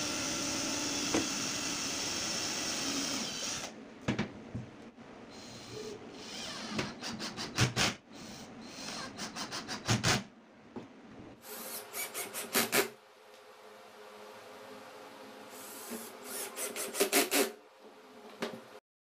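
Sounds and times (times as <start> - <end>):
cordless drill driving a screw: 0.0 - 3.7, 15.6 - 17.6.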